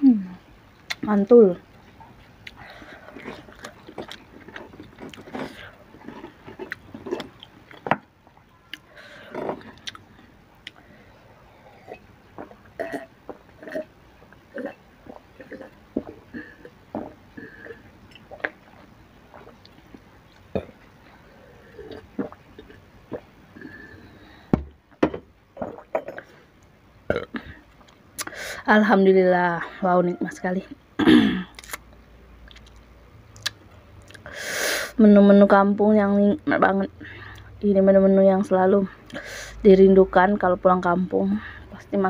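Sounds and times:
chewing with mouth clicks: 2.0s - 10.8s, 32.4s - 34.3s
gulping water: 11.6s - 24.0s.

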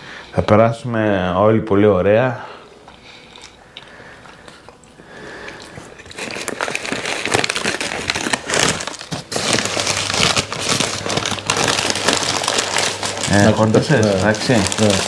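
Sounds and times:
wrapper being crumpled: 5.9s - 15.0s.

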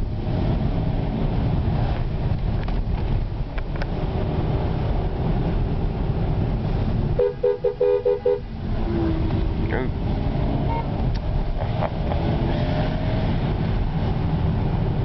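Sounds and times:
car engine and tyres rumble: 0.0s - 15.0s
car horn toots: 7.2s - 8.6s, 10.6s - 11.0s.

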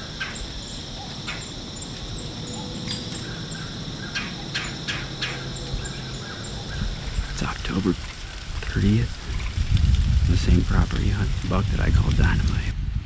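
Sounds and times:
steady high-pitched hum: 0.0s - 7.9s.

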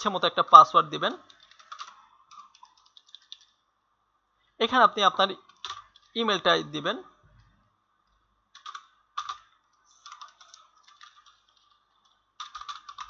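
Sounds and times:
computer keyboard typing: 1.1s - 3.6s, 5.4s - 6.2s, 8.1s - 13.0s.

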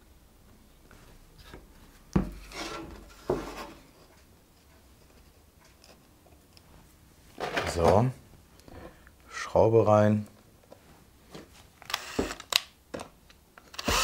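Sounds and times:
boards scraping on workbench: 2.3s - 3.9s.

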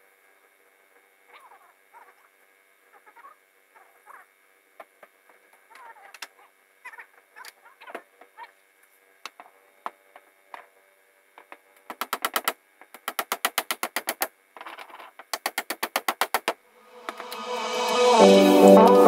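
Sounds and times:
rapid even knocking: 11.9s - 14.3s, 15.4s - 16.6s
music: 16.8s - 19.0s.

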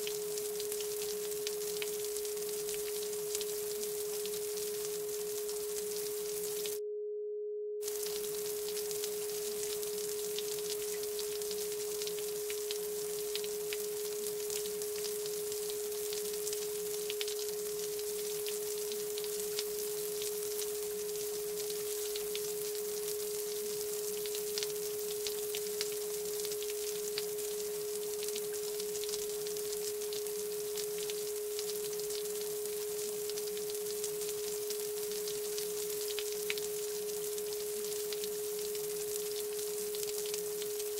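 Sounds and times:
soft hiss with faint crackles: 0.0s - 6.8s, 7.8s - 40.9s.

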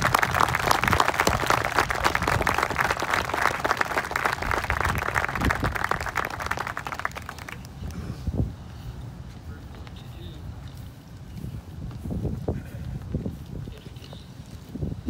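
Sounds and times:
audience applauding: 0.0s - 7.8s.

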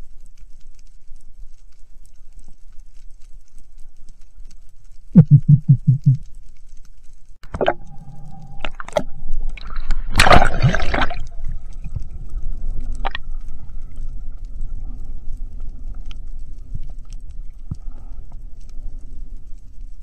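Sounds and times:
low underwater thumps: 5.2s - 6.2s
rushing water burst: 7.5s - 11.9s.

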